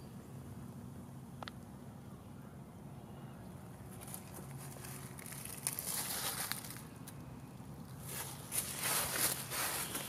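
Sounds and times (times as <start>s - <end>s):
dry leaves crunching underfoot: 3.9s - 6.9s, 7.9s - 10.0s.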